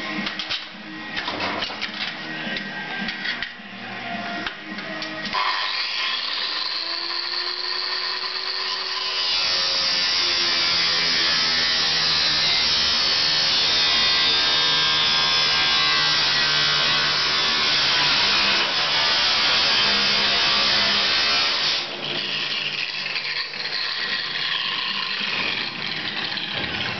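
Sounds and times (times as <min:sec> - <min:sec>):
angle grinder motor whine: 0:02.2 - 0:26.9
grinder cutting through steel: 0:05.2 - 0:26.9.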